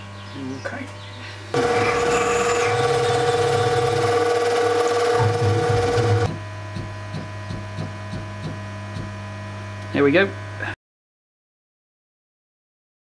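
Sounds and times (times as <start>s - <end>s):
low mains hum: 0.0s - 10.8s
drill cutting metal: 1.6s - 6.3s
mill spindle whine: 1.6s - 6.6s.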